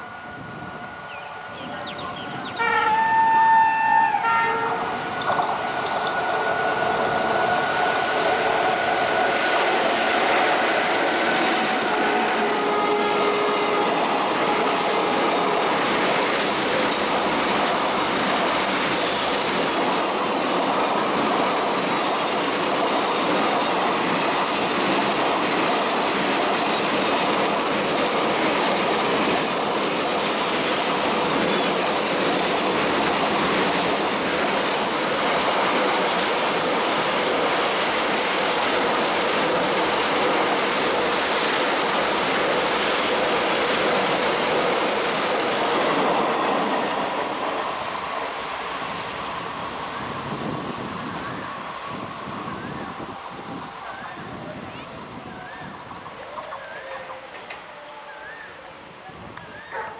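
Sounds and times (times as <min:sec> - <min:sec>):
train wheels rumbling on rail: 0:00.0 - 0:59.9
wheel squeal: 0:12.7 - 0:20.1, 0:22.9 - 0:31.8, 0:33.1 - 0:49.2.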